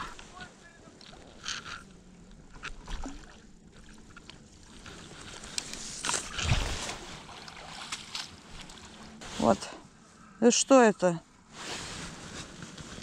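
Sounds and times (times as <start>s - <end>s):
water splashing and sloshing: 0.0s - 10.1s.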